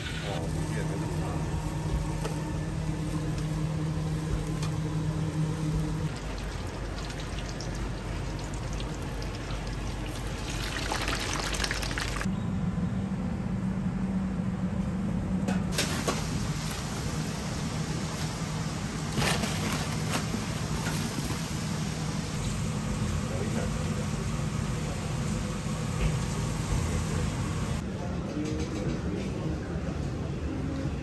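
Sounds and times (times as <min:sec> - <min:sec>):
steady hum: 0:00.0 - 0:27.8
lard sizzling in bubbling oil: 0:05.4 - 0:12.3
sauce pouring into pot: 0:06.2 - 0:12.3.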